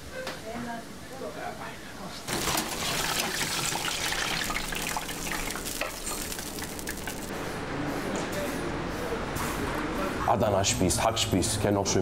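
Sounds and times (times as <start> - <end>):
vegetables deep-frying in oil: 2.3 - 7.4.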